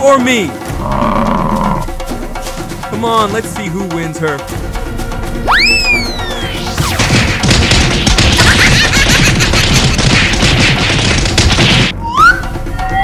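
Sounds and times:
cartoon brawl crashes and thwacks: 0:06.8 - 0:11.9.

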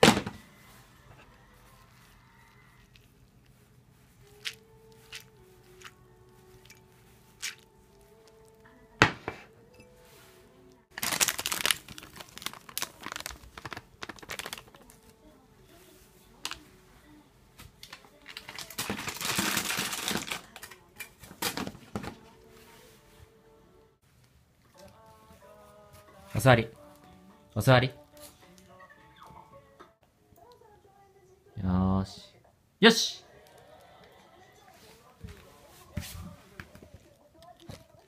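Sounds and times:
packet crinkling: 0:04.2 - 0:06.0, 0:06.6 - 0:08.5, 0:10.9 - 0:15.2, 0:17.8 - 0:20.8.

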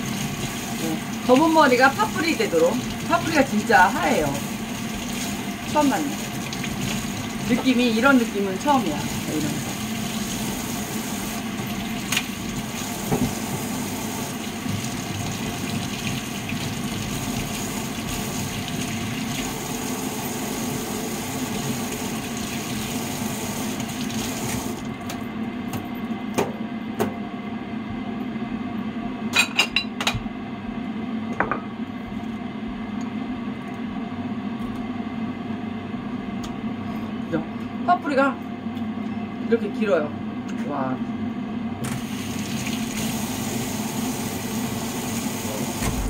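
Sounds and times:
tap running into sink: 0:12.0 - 0:13.7.

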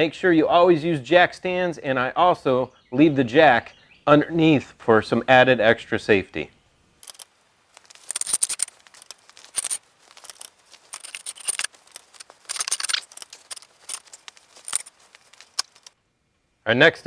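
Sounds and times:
metallic clicks and rattles: 0:07.0 - 0:16.0.

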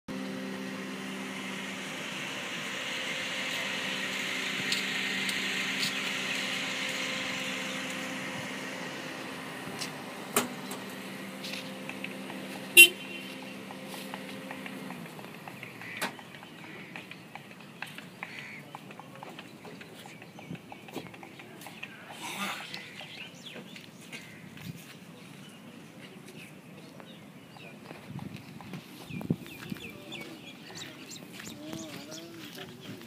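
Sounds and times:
vehicle engine humming: 0:00.1 - 0:33.0
short horn toot: 0:12.8 - 0:13.4.

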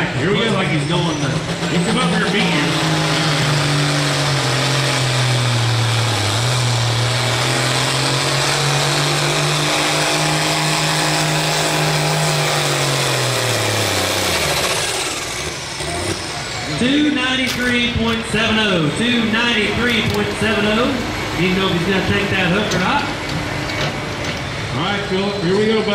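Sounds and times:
tractor diesel engine revving hard: 0:00.0 - 0:25.9.

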